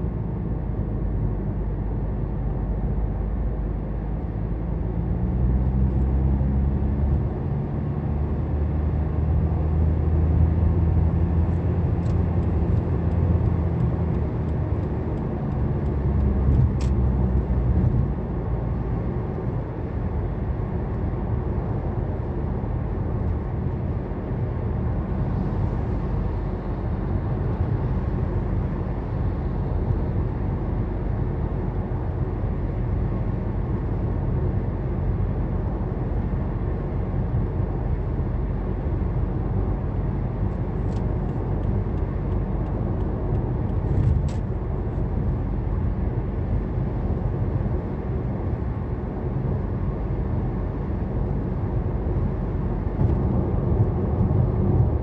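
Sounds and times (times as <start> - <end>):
car cabin road noise: 0.0 - 55.0
small tick: 40.8 - 44.4.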